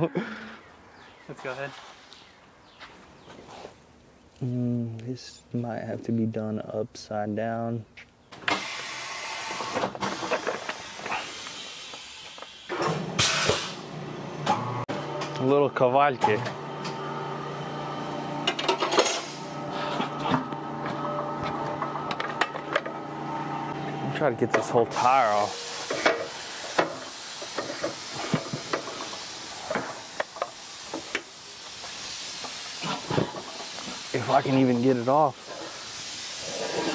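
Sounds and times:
compressed air hissing: 8.5 - 13.8, 24.9 - 36.9
tools clanking on a wheel: 18.4 - 19.3, 20.0 - 23.0.

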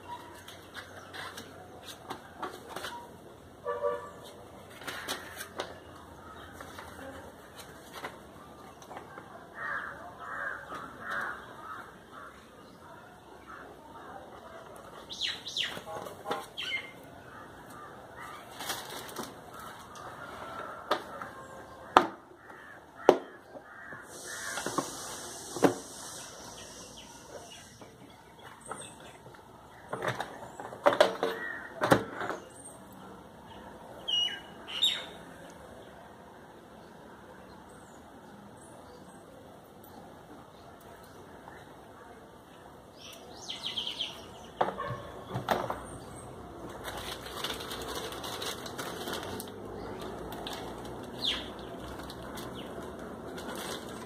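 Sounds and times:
paper and plastic bag rustling: 18.4 - 19.9, 46.5 - 54.0.

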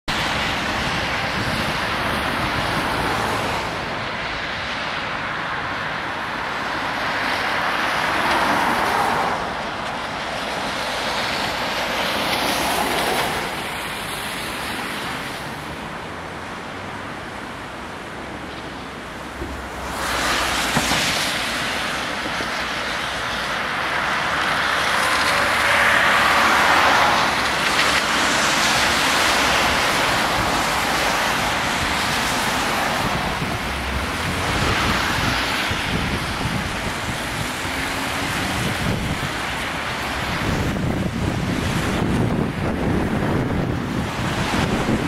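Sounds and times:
wind buffeting microphone: 0.1 - 4.9, 26.6 - 45.0
tyres hissing on wet road: 0.1 - 45.0.

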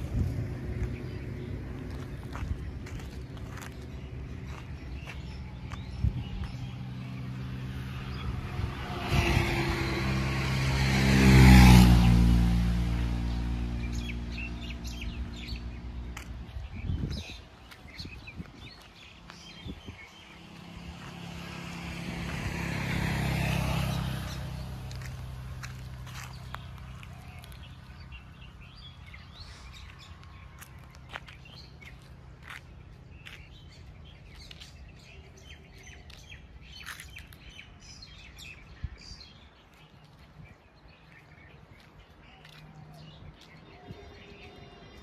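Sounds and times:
small birds chirping: 0.0 - 9.9, 12.9 - 22.0, 23.1 - 45.0
vehicle engine passing: 0.0 - 16.6, 20.2 - 37.2.

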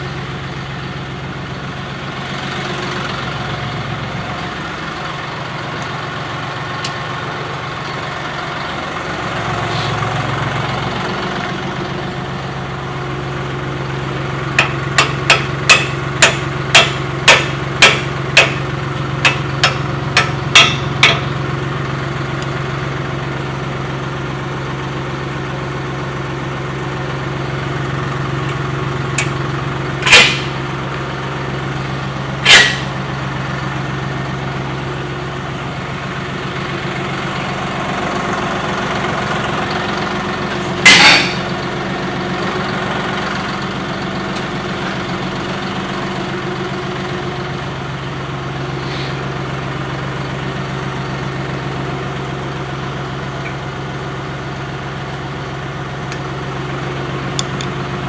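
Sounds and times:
diesel tractor idling: 0.0 - 58.0
sharp metal knocks: 14.6 - 21.4, 30.0 - 30.6, 40.8 - 41.5.

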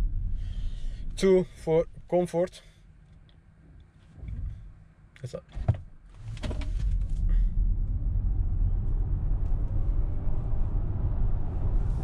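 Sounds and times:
tyre and road noise rumble: 0.0 - 2.1, 3.5 - 12.0.

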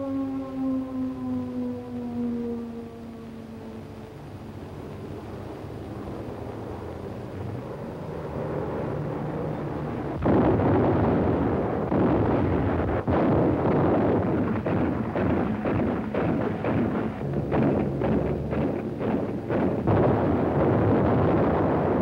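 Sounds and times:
low rumble: 0.7 - 22.0
continuous gunfire: 10.2 - 22.0
shell bursts: 10.2 - 22.0.

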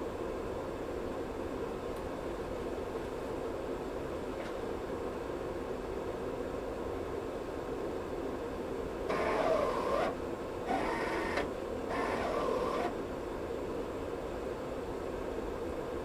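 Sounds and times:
steady hum: 0.0 - 16.0
printer motors whirring: 9.1 - 13.0.

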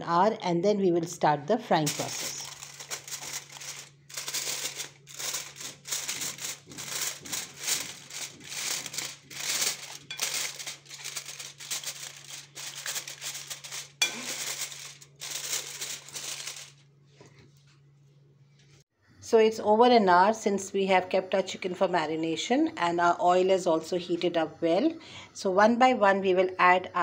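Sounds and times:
aluminium foil crinkling: 1.8 - 16.8.

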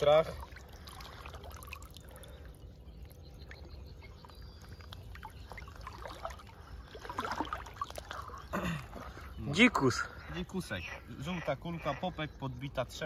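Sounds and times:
water trickling and dripping: 0.0 - 9.3.

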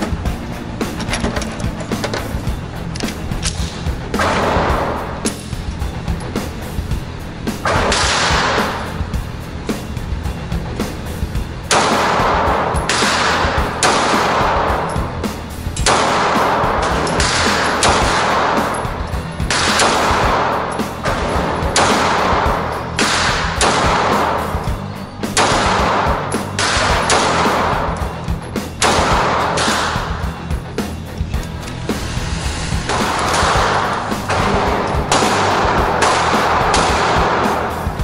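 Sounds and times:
pistol shots echoing indoors: 3.3 - 5.5, 7.6 - 9.1, 11.7 - 30.4, 32.9 - 38.0.

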